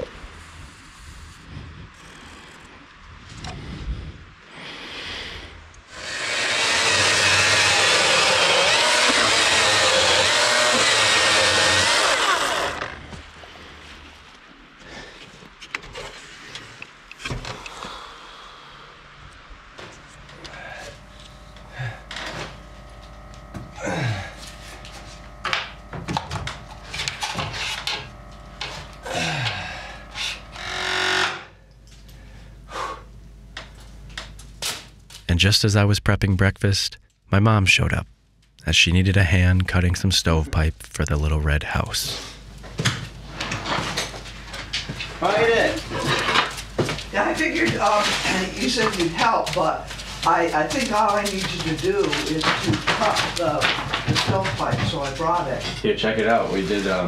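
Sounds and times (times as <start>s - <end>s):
wooden beam scraping: 5.9s - 13.1s
chainsaw cutting wood: 5.9s - 13.2s, 21.1s - 31.5s.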